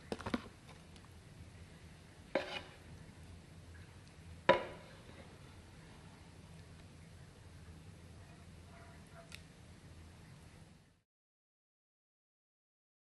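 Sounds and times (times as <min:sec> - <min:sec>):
cup measure clanking on frying pan: 0:04.5 - 0:05.0.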